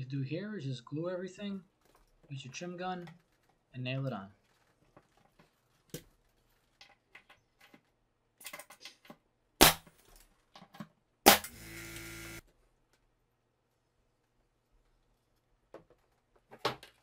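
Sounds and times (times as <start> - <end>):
pneumatic nailer firing: 11.2 - 12.4.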